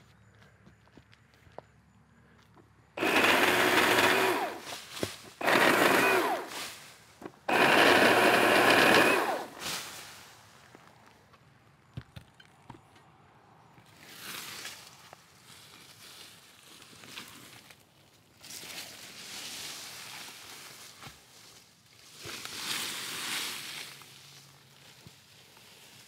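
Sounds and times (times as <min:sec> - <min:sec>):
pole saw cutting tree limb: 0:03.0 - 0:10.0.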